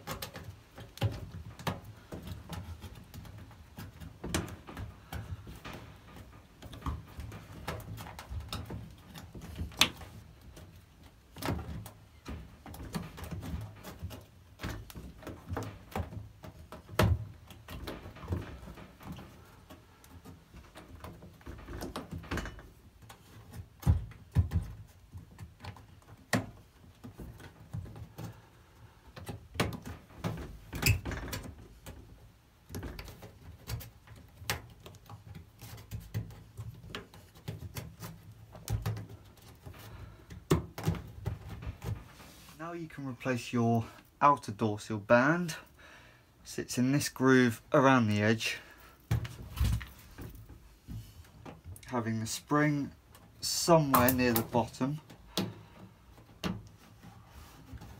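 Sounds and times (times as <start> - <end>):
rubber seal thumps and rubbing: 29.1 - 42.5.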